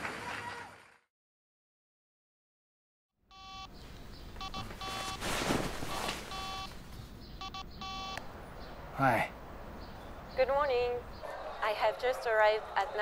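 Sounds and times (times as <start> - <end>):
smartphone ringtone: 3.3 - 3.7, 4.4 - 5.2, 6.3 - 6.7, 7.4 - 8.2
bedding rustling: 4.5 - 7.1.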